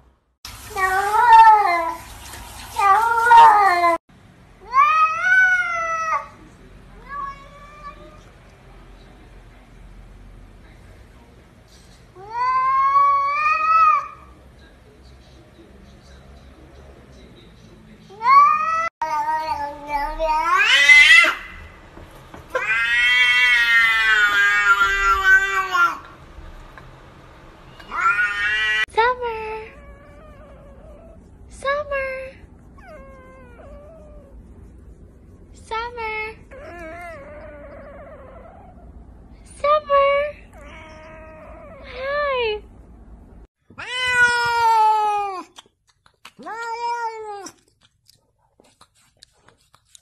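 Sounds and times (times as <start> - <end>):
cat meowing: 7.0 - 8.3, 18.2 - 21.7, 22.5 - 26.1, 27.8 - 28.9, 40.5 - 41.9, 43.7 - 45.5, 46.4 - 47.6.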